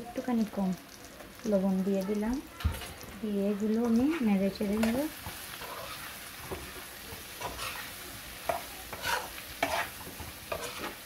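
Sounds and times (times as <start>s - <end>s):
potatoes sizzling in oil: 0.0s - 11.0s
utensil scraping pan: 4.1s - 11.0s.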